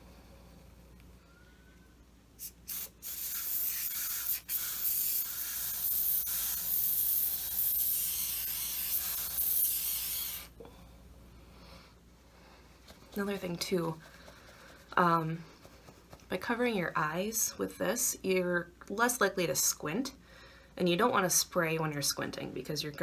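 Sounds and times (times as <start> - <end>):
aerosol spray hissing: 2.4 - 10.6.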